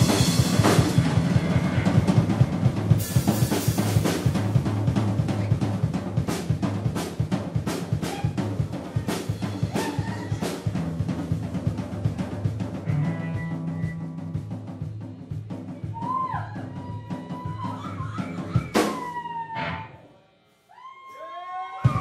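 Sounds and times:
bass drum strokes: 0.0 - 17.6.

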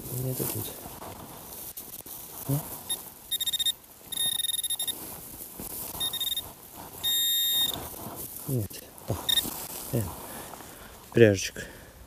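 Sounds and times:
metal detector probe beeping: 2.9 - 5.0, 6.0 - 7.8, 9.2 - 9.5.

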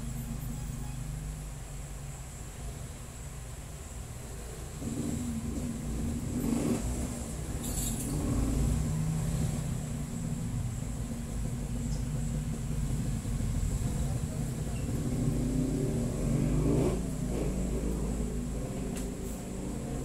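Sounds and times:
low rumble of traffic: 0.0 - 20.0
vehicle engine passing by: 4.5 - 20.0.

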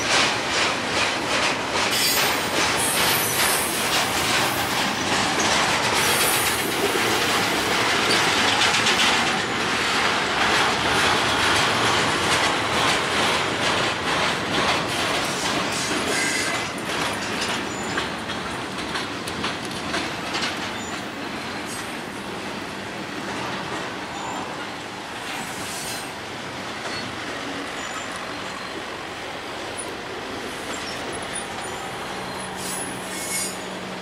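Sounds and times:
rapid clicking over rail: 0.0 - 33.4
train wheels rumbling on rail: 0.0 - 34.0
high wheel squeals: 15.8 - 16.6, 26.8 - 28.9, 30.5 - 33.8.

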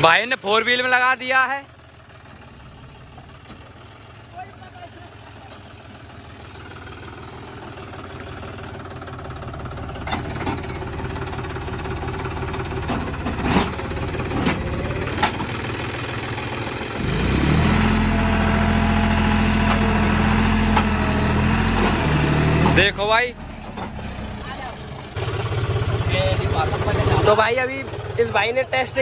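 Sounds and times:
tractor diesel engine running: 0.0 - 29.0.

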